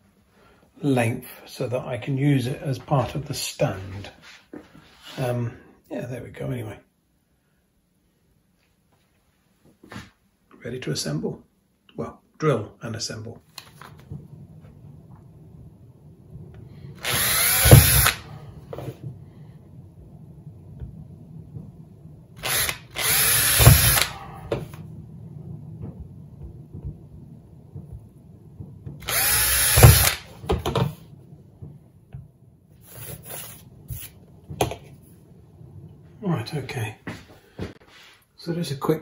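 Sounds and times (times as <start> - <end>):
cordless drill boring through plastic: 17.0 - 18.3, 22.4 - 24.2, 29.0 - 30.3.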